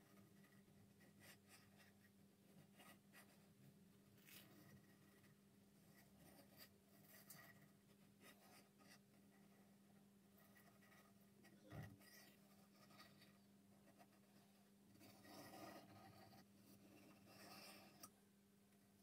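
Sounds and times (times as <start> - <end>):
marker scratching along ruler: 10.4 - 18.1.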